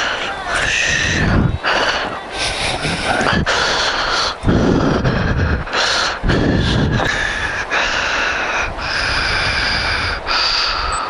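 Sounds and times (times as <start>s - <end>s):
person breathing heavily: 0.0s - 11.0s.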